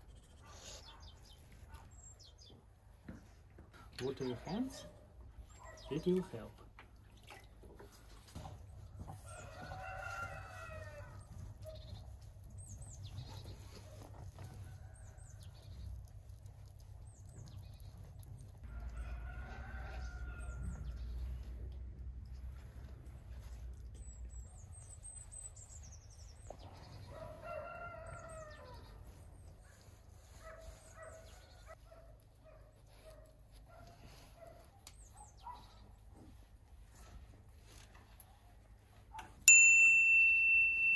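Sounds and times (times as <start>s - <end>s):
birds chirping: 0.0s - 2.7s, 3.8s - 6.5s, 33.7s - 36.0s
rooster crowing: 9.2s - 11.2s, 18.7s - 20.8s.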